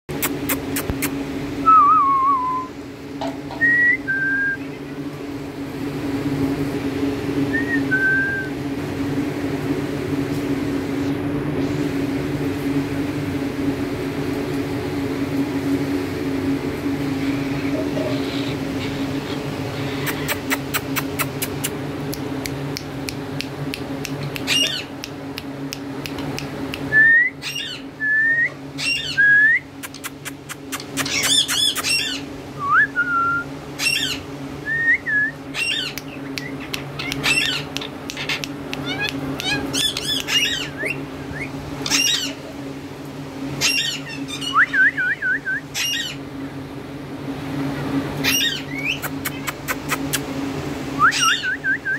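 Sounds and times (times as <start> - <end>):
steady low hum: 0.1 - 51.9
parakeets chirping and squawking: 17.2 - 21.7, 24.2 - 24.9, 27.4 - 27.9, 28.8 - 29.2, 29.9 - 32.3, 33.8 - 34.3, 35.5 - 42.5, 43.6 - 44.6, 45.8 - 46.2, 48.2 - 50.1, 51.1 - 51.4.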